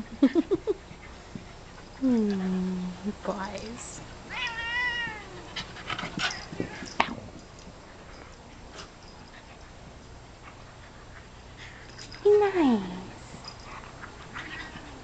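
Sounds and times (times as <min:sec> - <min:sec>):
animals scuffling: 0:01.0 - 0:15.0
dog whining: 0:04.3 - 0:07.2.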